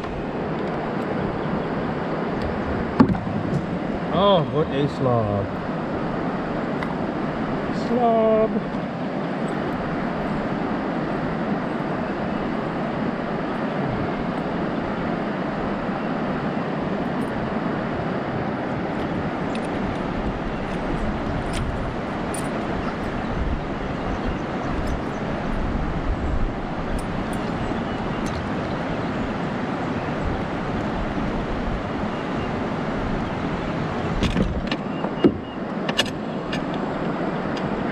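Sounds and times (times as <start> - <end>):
river rushing over riffles: 0.0 - 34.9.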